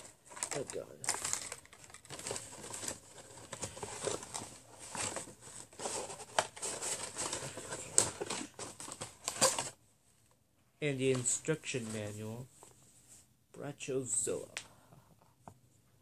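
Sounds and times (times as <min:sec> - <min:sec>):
cardboard box crinkling and rustling: 0:00.0 - 0:09.8.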